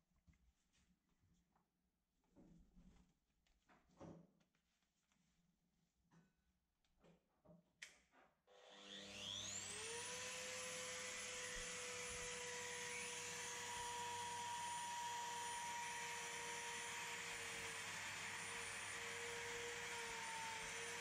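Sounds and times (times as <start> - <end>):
router motor whining: 8.5 - 21.0.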